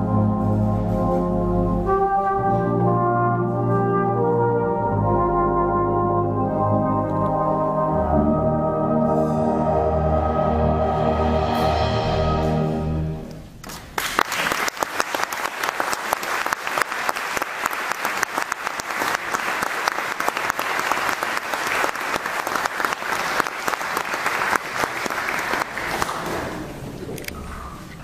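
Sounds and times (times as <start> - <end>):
brass band chord: 0.0 - 13.4
applause: 13.6 - 26.7.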